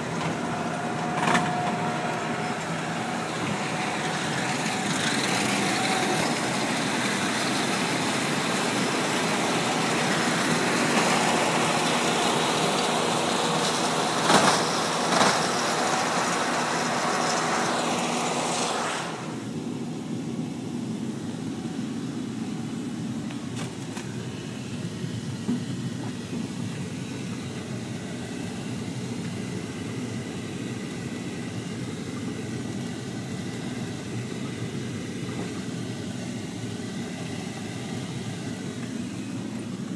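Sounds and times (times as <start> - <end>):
vehicle engine running: 0.0 - 39.9
wide hiss: 2.2 - 19.8.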